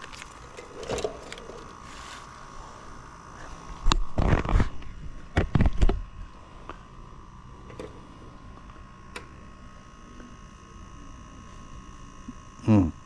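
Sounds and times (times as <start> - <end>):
faint steady tone: 6.2 - 13.0.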